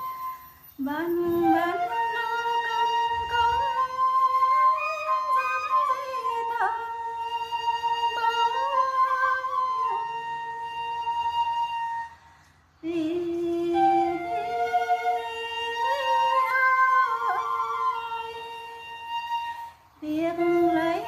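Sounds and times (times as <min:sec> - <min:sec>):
high held tone: 0:00.0 - 0:04.0
woman singing folk song: 0:00.8 - 0:10.2, 0:12.8 - 0:21.0.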